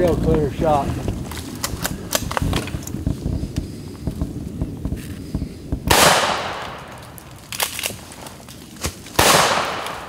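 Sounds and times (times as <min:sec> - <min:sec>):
rustling: 0:00.0 - 0:05.9, 0:06.5 - 0:09.2
shotgun shot echoing: 0:05.8 - 0:07.0, 0:09.2 - 0:10.0.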